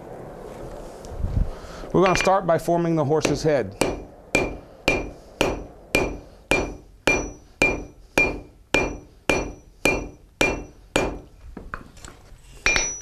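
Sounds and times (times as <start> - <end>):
hammer striking metal on anvil: 3.2 - 11.3, 12.6 - 13.0.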